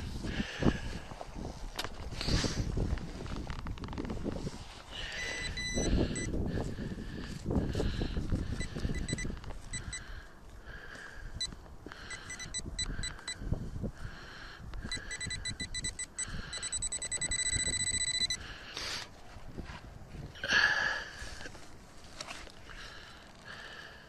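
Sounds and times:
metal detector probe beeping: 5.0 - 6.4, 8.5 - 10.1, 11.4 - 13.4, 14.8 - 18.4.

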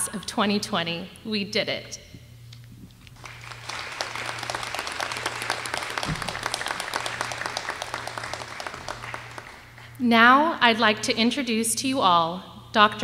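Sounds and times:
low electrical hum: 0.0 - 13.0
group of people clapping: 3.1 - 10.0.

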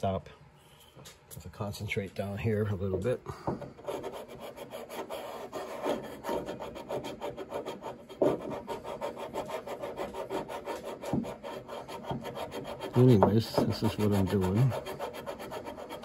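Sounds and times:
sandpaper rubbing on wood: 3.8 - 16.0.

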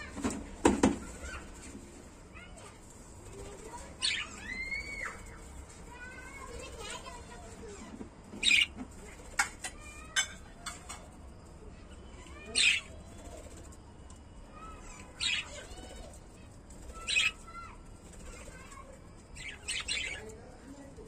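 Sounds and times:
budgerigars chirping and squawking: 3.6 - 5.4, 8.3 - 11.1, 11.8 - 13.5, 14.7 - 17.6, 18.2 - 20.3.

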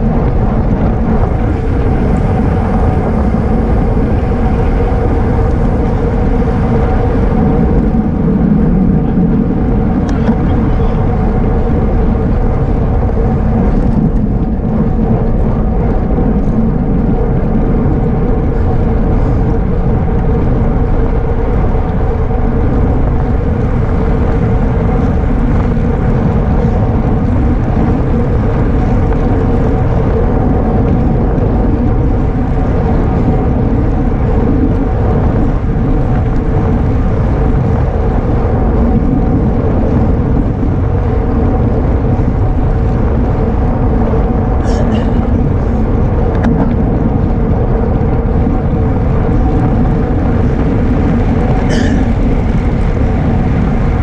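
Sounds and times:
steady hum: 0.0 - 54.0
wind noise on microphone: 0.0 - 54.0.

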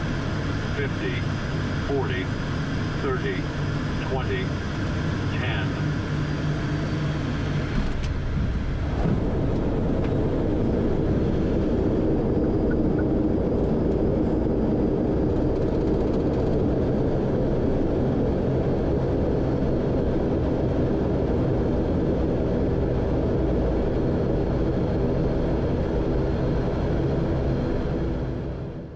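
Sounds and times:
turboprop engines droning: 0.0 - 28.9.

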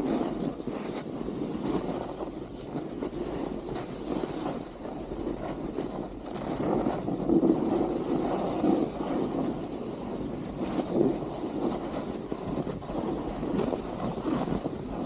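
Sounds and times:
skis scraping over snow: 0.0 - 15.0
wind buffeting microphone: 0.0 - 15.0.

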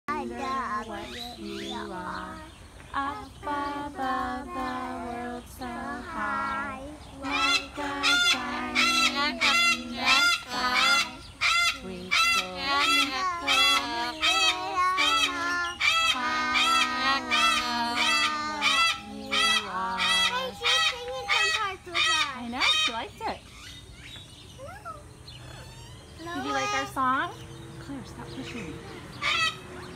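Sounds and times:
parrot honking notes: 7.2 - 23.1, 29.2 - 29.8.

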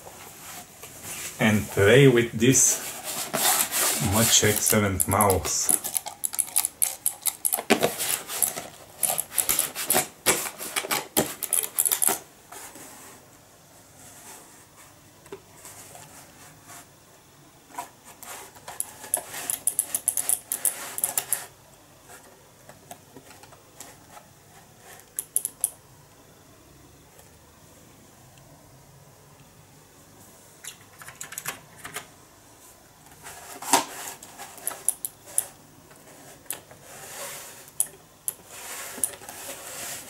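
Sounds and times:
computer mouse rattling clicks: 4.5 - 9.8, 11.3 - 12.2, 18.8 - 21.4, 25.1 - 25.7.

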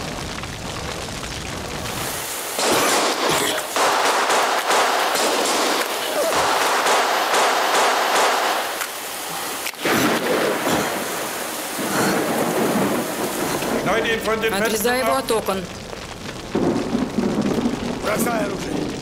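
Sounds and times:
sharp crack: 0.0 - 14.4
house fire crackling: 0.0 - 19.0.

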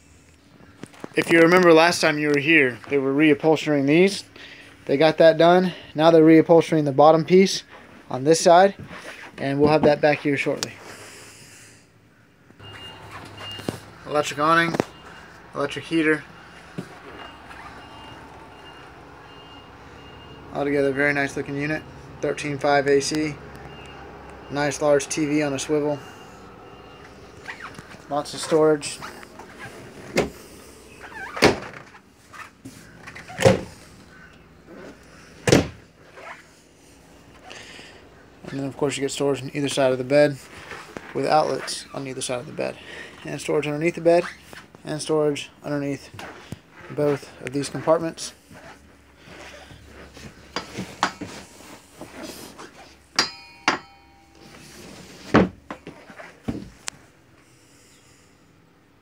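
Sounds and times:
wooden doors opening and shutting: 31.3 - 32.0, 33.0 - 33.9.

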